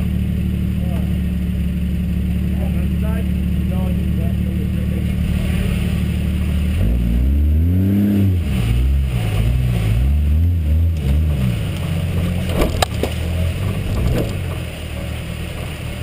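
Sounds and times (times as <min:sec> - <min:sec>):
truck engine revving: 0:00.0 - 0:16.0
branches clicking against truck: 0:10.9 - 0:14.7.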